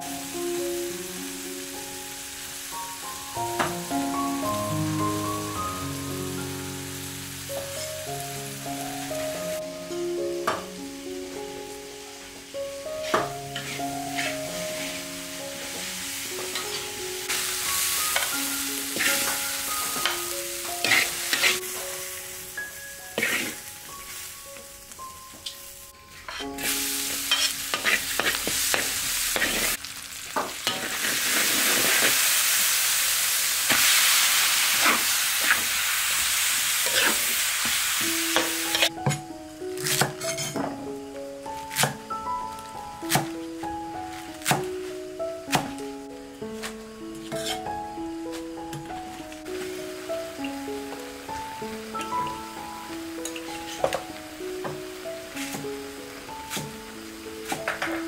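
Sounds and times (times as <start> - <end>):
soft background music: 0.0 - 29.8, 36.4 - 58.0
oil sizzling: 0.0 - 58.0
spatula scraping a wok: 13.0 - 16.9, 17.8 - 21.8, 23.0 - 24.3, 26.1 - 29.8, 30.6 - 32.6, 33.7 - 39.0, 40.2 - 40.6, 47.2 - 47.8, 53.2 - 54.0.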